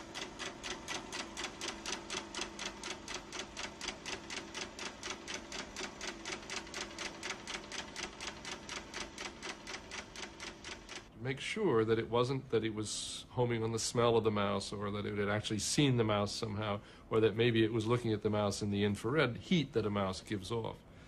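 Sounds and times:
rapid even clicking: 0:00.0 - 0:11.1
faint steady hum: 0:00.0 - 0:21.0.

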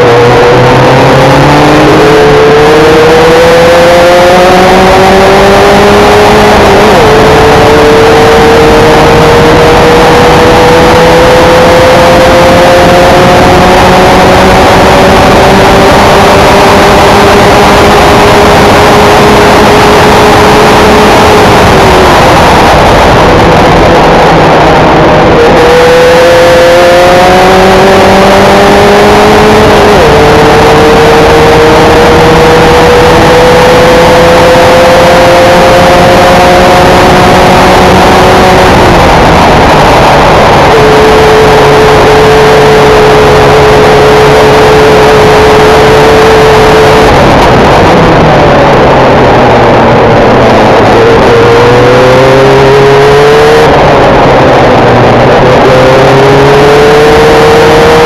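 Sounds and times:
constant rushing noise: 0:00.0 - 0:58.0
race car engine running hard: 0:00.0 - 0:58.0.

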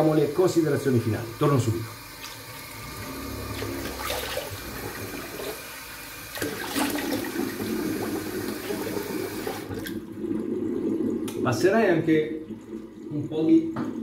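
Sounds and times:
water splashing on face: 0:06.3 - 0:08.0
tap running into a sink: 0:13.6 - 0:14.0.

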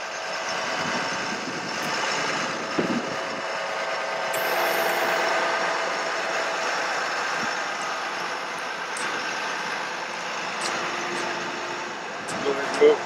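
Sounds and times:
truck mechanical hum: 0:00.0 - 0:13.0
faint whine: 0:04.3 - 0:12.8.

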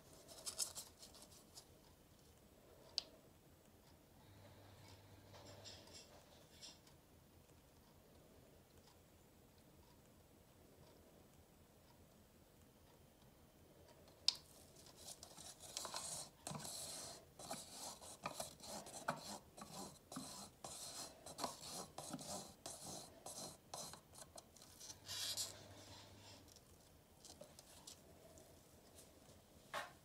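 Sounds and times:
stick scraping in plastic cup: 0:15.0 - 0:25.6.

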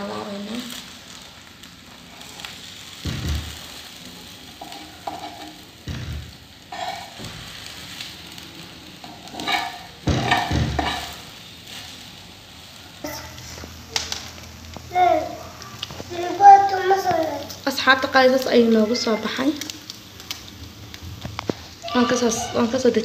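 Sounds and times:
crepe sizzling on a pan: 0:00.0 - 0:23.0
spatula scraping a pan: 0:02.1 - 0:08.1, 0:09.0 - 0:11.9.

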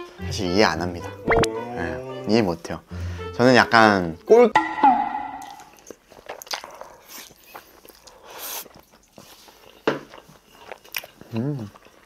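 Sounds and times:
chewing mouth smacks: 0:05.8 - 0:12.0.

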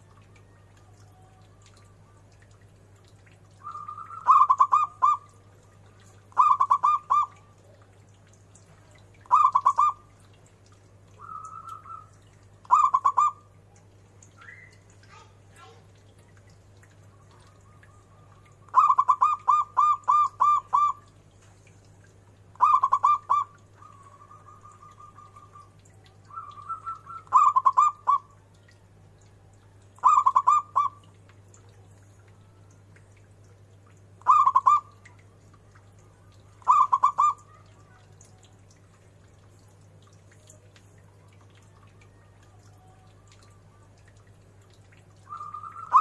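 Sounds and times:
dove cooing: 0:03.6 - 0:05.4, 0:06.3 - 0:07.5, 0:09.2 - 0:10.1, 0:11.2 - 0:13.4, 0:17.2 - 0:21.0, 0:22.6 - 0:28.3, 0:30.0 - 0:31.0, 0:34.2 - 0:35.0, 0:36.6 - 0:38.0, 0:45.3 - 0:46.0.

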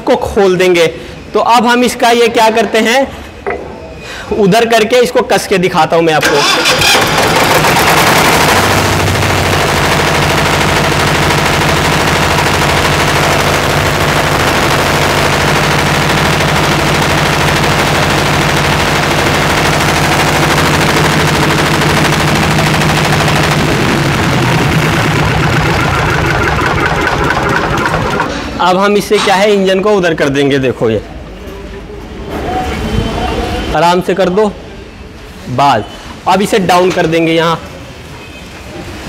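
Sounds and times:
diesel engine pulsing steadily: 0:06.3 - 0:28.6.

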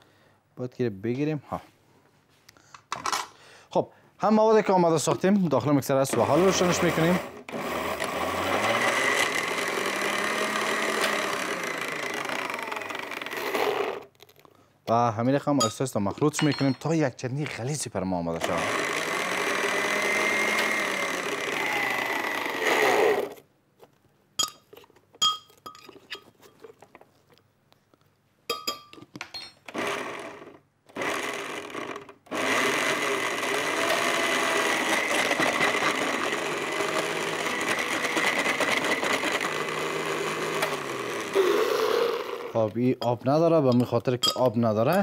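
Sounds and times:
blender motor running: 0:06.1 - 0:14.1, 0:18.4 - 0:23.4, 0:29.7 - 0:42.6.

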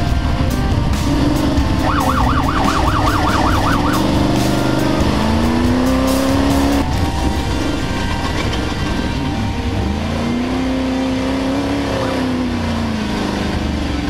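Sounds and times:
truck engine running hard: 0:00.0 - 0:14.0
warbling siren: 0:01.6 - 0:11.2.

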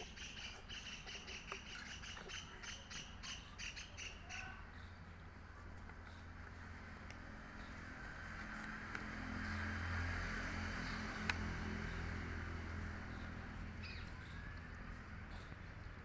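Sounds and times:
low engine hum: 0:00.0 - 0:16.0.

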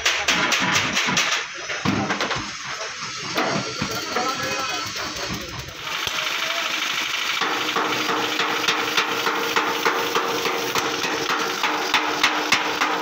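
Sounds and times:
hammer striking sheet metal: 0:00.0 - 0:02.5, 0:07.4 - 0:13.0.

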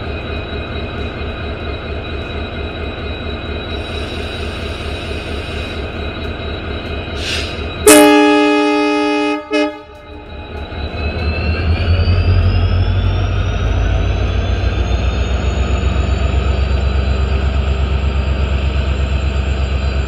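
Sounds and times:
locomotive engine throbbing: 0:00.0 - 0:20.0
locomotive horn blast: 0:07.8 - 0:10.1.

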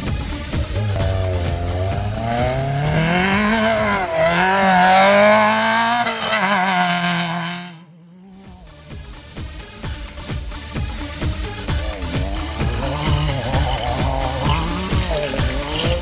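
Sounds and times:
buggy engine revving: 0:00.0 - 0:16.0
tyres spraying dirt: 0:10.8 - 0:16.0.

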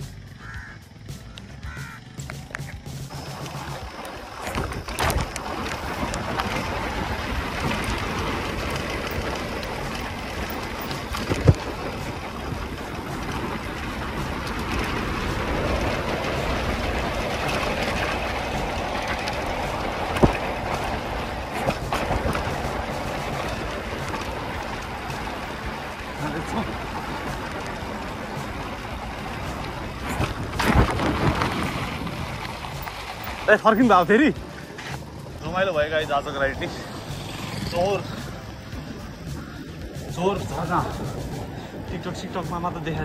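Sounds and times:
bike tyres rolling: 0:00.0 - 0:43.0
wind on microphone: 0:27.2 - 0:33.3.

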